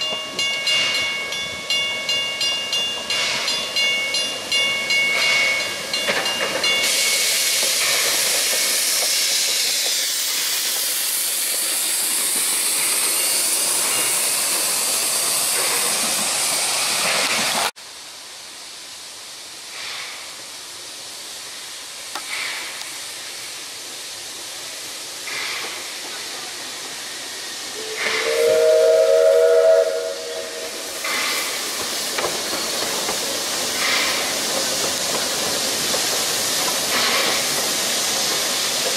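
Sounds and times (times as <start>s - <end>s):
steam locomotive hissing: 0.0s - 38.9s
steam whistle: 27.8s - 30.8s.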